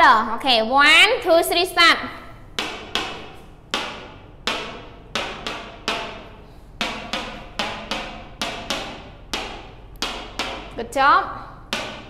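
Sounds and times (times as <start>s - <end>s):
pointer stick tapping on whiteboard: 2.5s - 10.8s, 11.7s - 12.0s.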